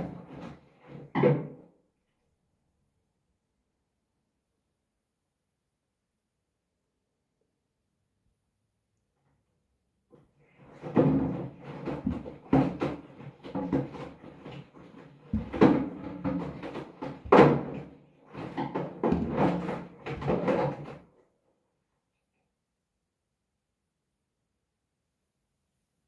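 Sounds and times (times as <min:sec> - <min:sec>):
water sloshing in drum: 0:10.7 - 0:20.9
washing machine drum thudding: 0:15.3 - 0:20.9.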